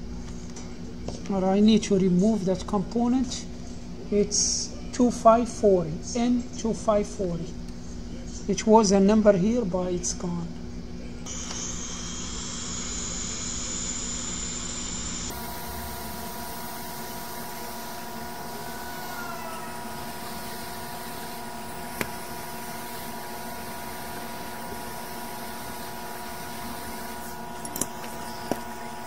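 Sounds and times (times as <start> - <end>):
hot air blower hissing: 11.3 - 29.0.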